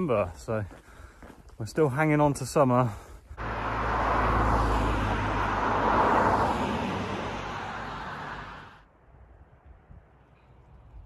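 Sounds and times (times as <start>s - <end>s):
cars driving past: 3.4s - 8.9s.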